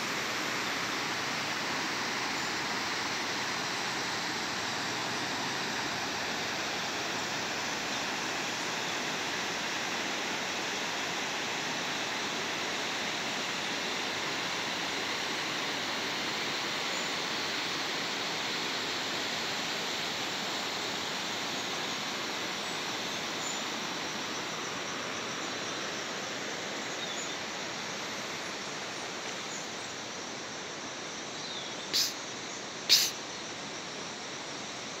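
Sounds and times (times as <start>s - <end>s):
swollen stream rushing: 0.0s - 16.8s.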